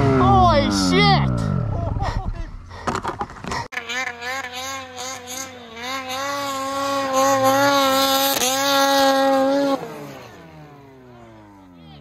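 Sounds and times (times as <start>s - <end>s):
snowmobile engine at high revs: 0.0s - 2.5s, 3.3s - 12.0s.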